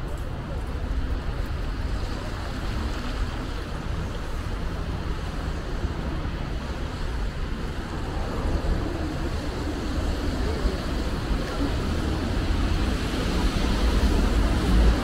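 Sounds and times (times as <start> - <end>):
city traffic noise: 0.0 - 15.0
wind rumble on microphone: 0.0 - 15.0.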